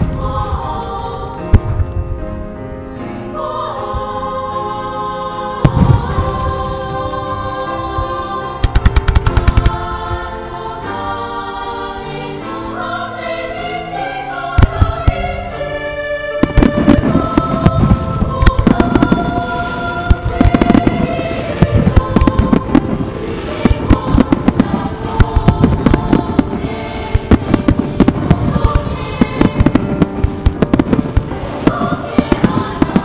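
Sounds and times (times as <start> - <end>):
music with long held notes: 0.0 - 33.0
firework shells bursting: 7.9 - 10.2, 16.4 - 33.0.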